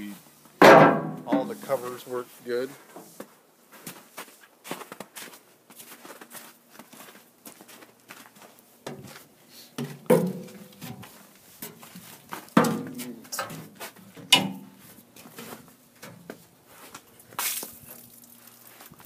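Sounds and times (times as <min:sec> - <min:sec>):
sheet metal knocks and clanks: 0:00.6 - 0:01.6, 0:09.8 - 0:11.0, 0:12.6 - 0:13.6, 0:14.2 - 0:14.8.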